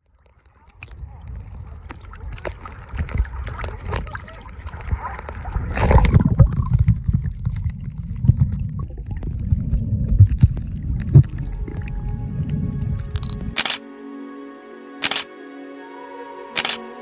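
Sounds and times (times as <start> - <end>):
muffled underwater rumble: 0.0 - 13.7
water lapping and splashing: 0.0 - 13.8
loud splash into water: 1.9 - 7.2.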